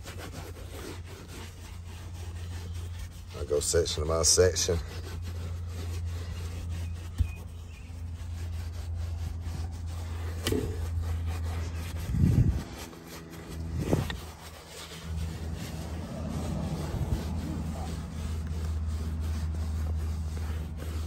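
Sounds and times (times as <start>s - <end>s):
brush scrubbing leather seat: 0.0s - 21.0s
dull bumps: 6.9s - 7.9s.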